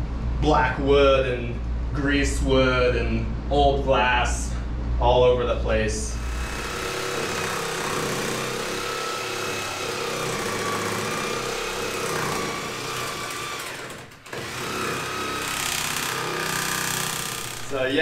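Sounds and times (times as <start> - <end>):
electric saw cutting wood: 6.2 - 17.7.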